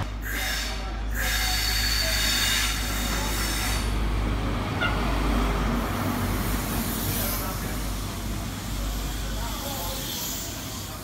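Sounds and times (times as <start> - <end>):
diesel train engine hum: 0.0 - 11.0
wheel and rail noise: 0.0 - 11.0.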